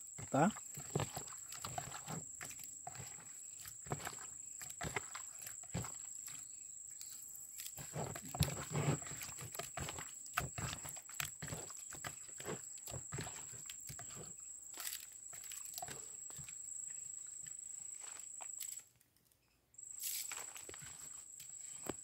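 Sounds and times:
hand squishing raw fish: 0:00.0 - 0:16.6.

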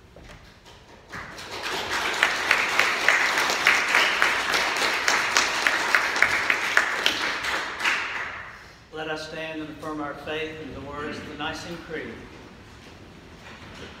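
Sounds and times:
congregation applauding: 0:01.0 - 0:08.9.

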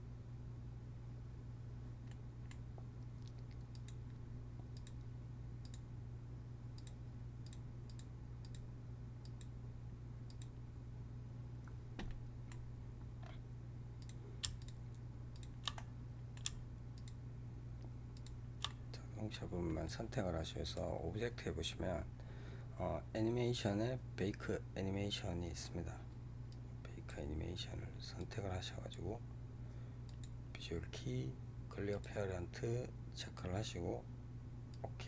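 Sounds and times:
steady low hum: 0:00.0 - 0:35.0
computer mouse clicks: 0:03.2 - 0:05.8, 0:06.8 - 0:09.5, 0:10.3 - 0:10.5, 0:14.0 - 0:17.2, 0:18.2 - 0:18.8.

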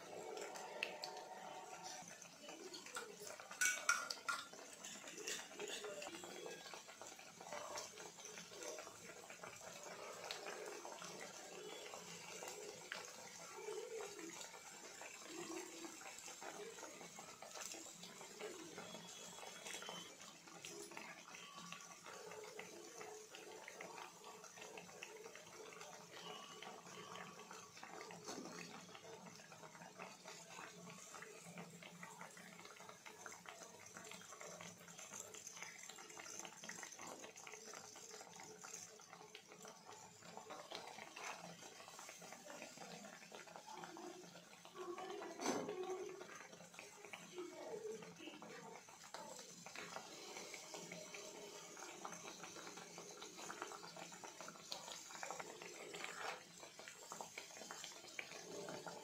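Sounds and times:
food deep-frying in oil: 0:00.0 - 0:59.0.

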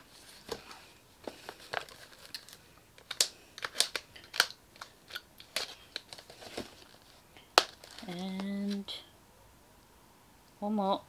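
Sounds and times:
packaging being handled: 0:00.3 - 0:08.9.

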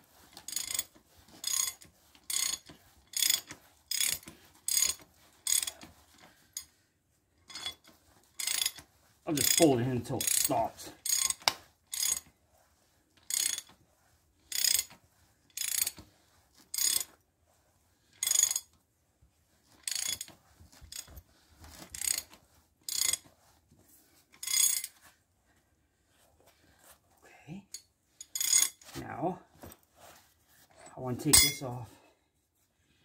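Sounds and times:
ratchet wrench clicking: 0:00.5 - 0:00.9, 0:01.5 - 0:02.6, 0:03.2 - 0:05.7, 0:08.4 - 0:08.8, 0:13.3 - 0:13.7, 0:14.5 - 0:14.9, 0:22.9 - 0:23.2.

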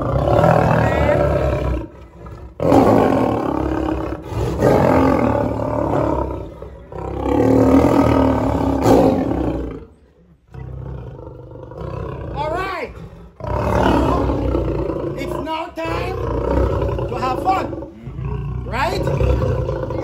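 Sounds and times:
lion roaring: 0:00.0 - 0:20.0.

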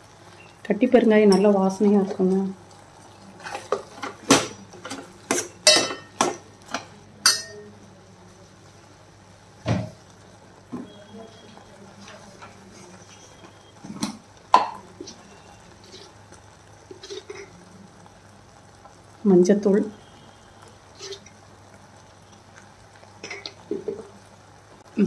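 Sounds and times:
metal ladle clinking in pot: 0:03.5 - 0:07.7.

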